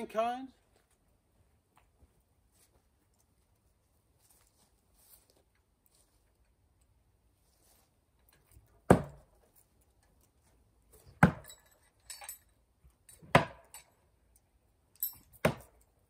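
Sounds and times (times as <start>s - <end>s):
axes striking wooden target: 8.9s - 9.3s, 11.1s - 11.5s, 13.2s - 13.7s, 15.4s - 15.8s.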